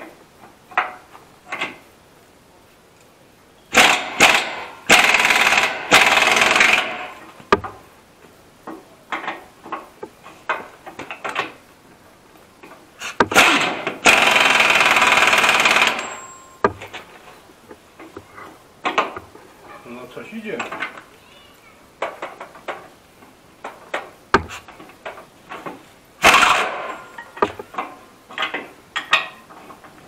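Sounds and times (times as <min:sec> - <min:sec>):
pneumatic impact wrench hammering: 0:03.7 - 0:07.8, 0:13.0 - 0:17.0, 0:24.3 - 0:24.8, 0:25.6 - 0:29.4.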